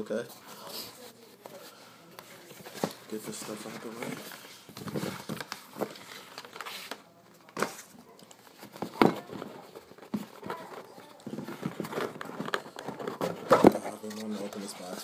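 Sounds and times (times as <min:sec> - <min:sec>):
packaging rustling: 0:00.8 - 0:15.0
boxes thumping on a table: 0:08.6 - 0:13.9.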